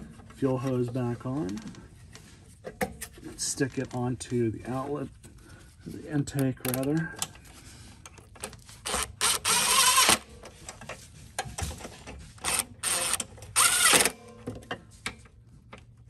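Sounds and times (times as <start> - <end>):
power tool driving bolts: 8.8 - 10.3, 12.4 - 14.3.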